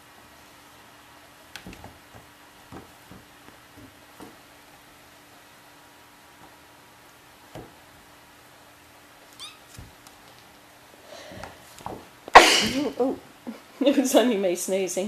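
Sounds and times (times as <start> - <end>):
kittens knocking on wooden floor: 1.6 - 4.4
person sneezing: 12.3 - 13.0.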